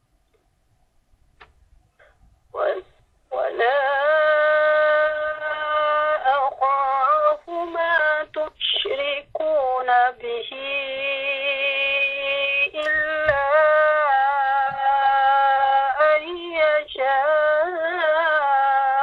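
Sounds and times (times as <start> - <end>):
woman chanting recitation: 2.6 - 19.0.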